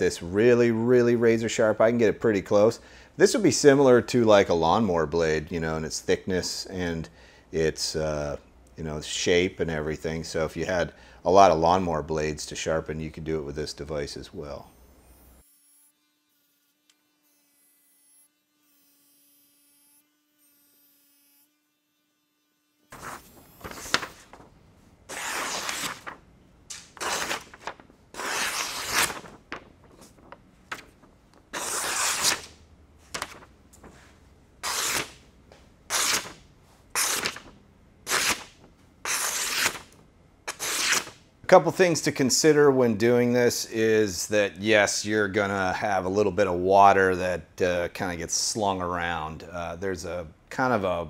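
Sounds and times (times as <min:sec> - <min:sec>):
faint steady hum: 0:00.0 - 0:51.0
cleaver slicing paper: 0:22.9 - 0:24.5, 0:25.1 - 0:33.4, 0:34.6 - 0:35.2, 0:35.9 - 0:36.4, 0:37.0 - 0:37.5, 0:38.1 - 0:38.5, 0:39.1 - 0:39.9, 0:40.5 - 0:41.2.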